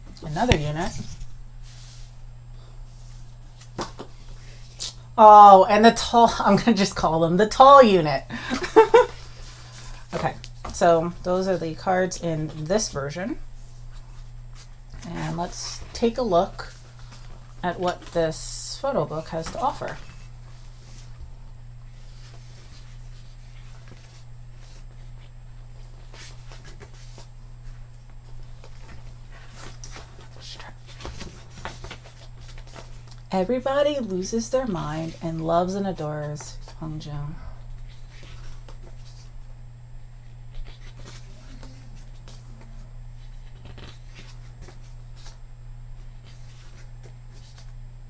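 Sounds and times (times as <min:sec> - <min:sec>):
steady low hum: 0:00.0 - 0:48.0
book pages turning: 0:21.9 - 0:33.3, 0:40.5 - 0:45.4, 0:46.0 - 0:47.7.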